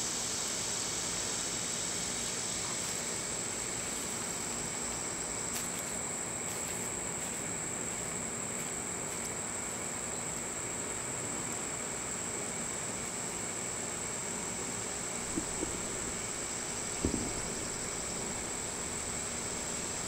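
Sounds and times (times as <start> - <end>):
background hiss: 0.0 - 20.0
high-pitched insect chorus: 0.0 - 20.0
faint ticks: 15.2 - 20.0.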